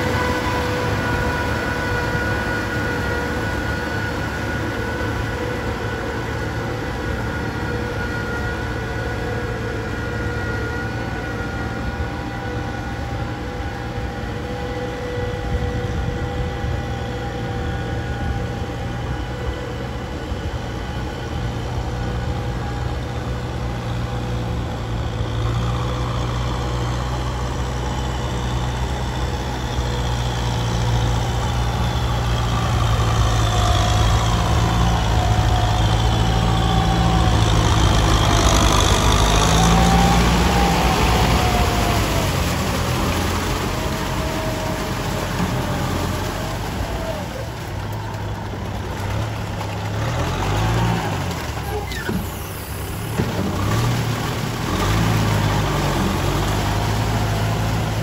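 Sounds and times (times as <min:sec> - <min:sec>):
diesel tractor engine running: 0:00.0 - 0:58.0
tractor engine whine: 0:00.0 - 0:58.0.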